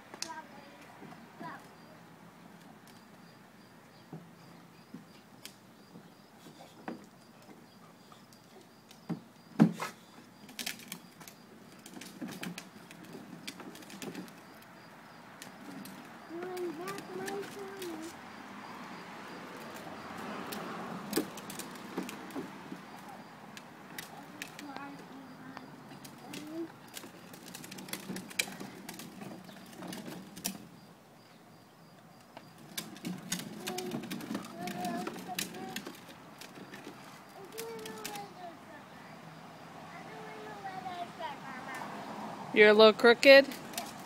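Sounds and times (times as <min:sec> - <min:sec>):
plastic wheels rolling over concrete: 0:00.0 - 0:03.2, 0:04.0 - 0:38.9, 0:39.9 - 0:44.0
plastic ride-on car knocks and clicks: 0:08.9 - 0:14.7, 0:15.4 - 0:18.2, 0:19.6 - 0:25.1, 0:26.0 - 0:30.8, 0:32.3 - 0:38.3.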